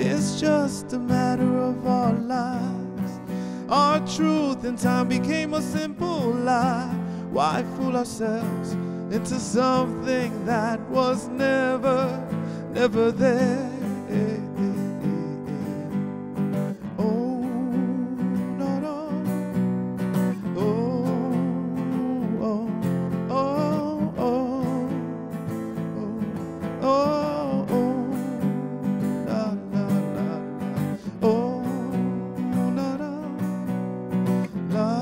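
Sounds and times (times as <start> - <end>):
acoustic guitar strummed and picked: 0.0 - 35.0.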